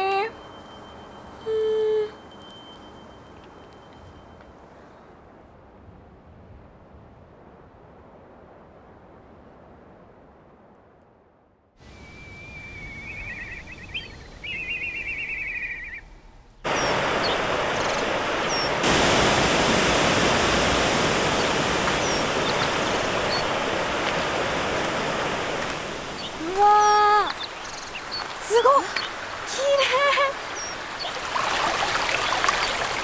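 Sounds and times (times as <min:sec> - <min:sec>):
heavy rain on foliage: 0:16.7 - 0:33.0.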